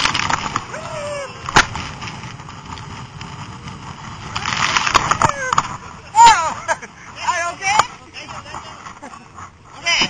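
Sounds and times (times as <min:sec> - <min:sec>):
inflatable boat sliding over snow: 0:00.0 - 0:10.0.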